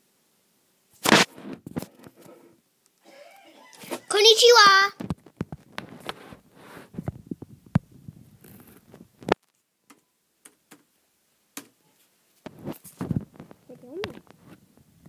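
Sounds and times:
laptop keyboard typing: 9.9 - 10.9.

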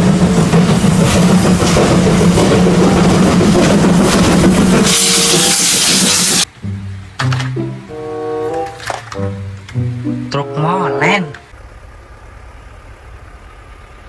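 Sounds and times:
steam locomotive rumble: 0.0 - 10.5
loud hiss of steam: 4.6 - 6.5.

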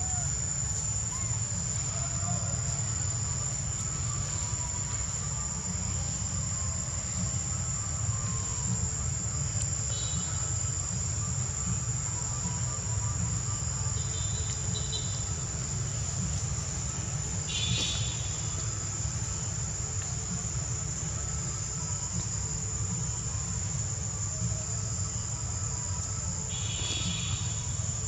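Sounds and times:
insects droning: 0.0 - 28.0.

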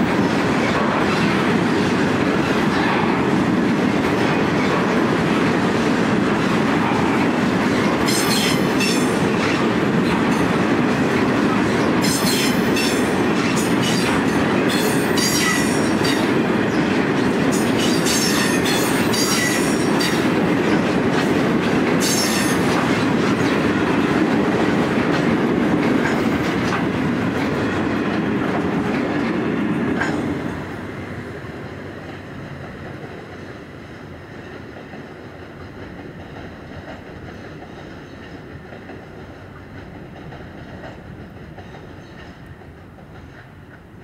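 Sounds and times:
train wheels clicking over rail joints: 0.0 - 30.8, 31.7 - 44.0
distant train rumble: 0.0 - 44.0
train wheels squealing: 8.1 - 9.1, 12.0 - 13.1, 14.7 - 16.2, 17.6 - 20.2, 22.0 - 22.6.

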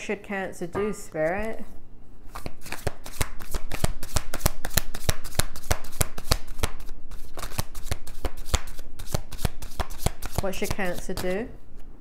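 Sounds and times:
cards being shuffled by hand: 2.3 - 11.4.

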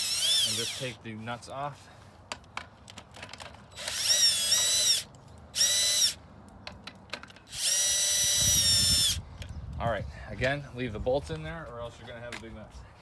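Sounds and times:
cordless drill motor whine: 0.0 - 1.0, 3.7 - 6.2, 7.5 - 9.2.

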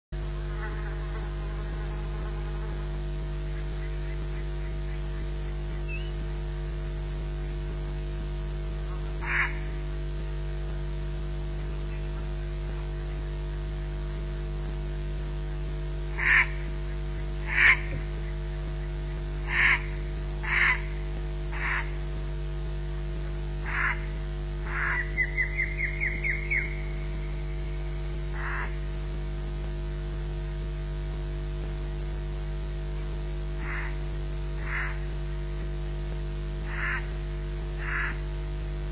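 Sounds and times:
electrical mains hum: 0.1 - 38.9
crows cawing: 9.2 - 9.7, 16.2 - 16.7, 17.4 - 18.0, 19.4 - 22.0, 23.6 - 27.0, 28.3 - 28.8, 33.6 - 34.0, 34.6 - 35.1, 36.6 - 37.1, 37.8 - 38.2.

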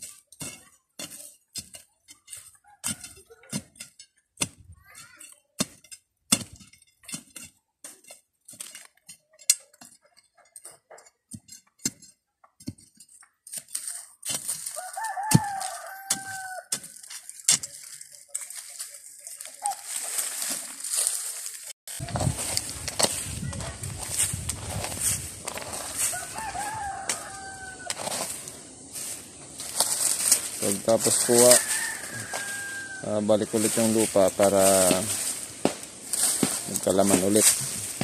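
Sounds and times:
digging stick scraping stony soil: 0.0 - 38.0
rooster crowing: 14.8 - 16.7, 25.7 - 29.1, 30.7 - 33.8.

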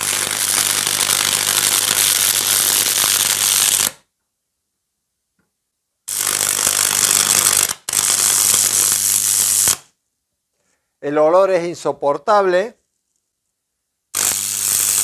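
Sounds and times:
electric arc buzzing crackle: 0.0 - 4.1, 6.1 - 10.0, 14.1 - 15.0.

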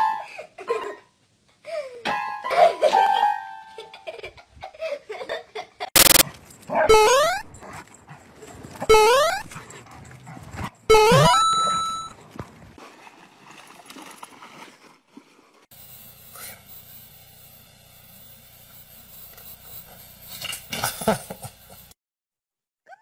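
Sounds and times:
dog whining yelps: 6.7 - 7.6, 8.8 - 9.6, 10.9 - 12.1.

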